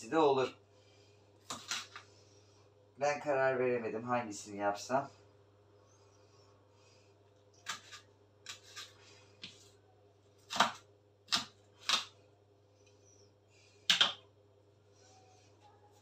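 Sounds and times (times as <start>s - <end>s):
knife chopping on wooden board: 10.5s - 12.1s.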